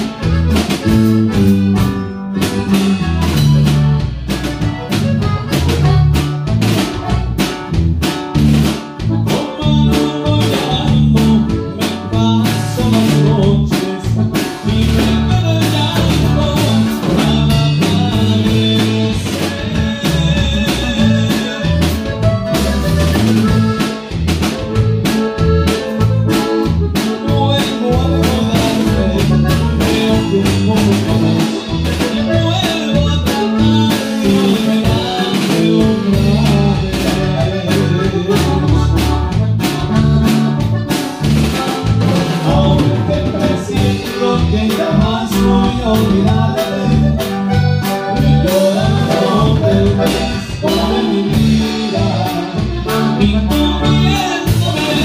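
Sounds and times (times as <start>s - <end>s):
bajo sexto guitar: 0.0s - 55.0s
button accordion: 0.0s - 55.0s
drum kit steady beat: 0.0s - 55.0s
electric bass: 0.0s - 55.0s
man singing into a microphone: 9.1s - 22.6s, 27.0s - 39.1s, 41.7s - 55.0s.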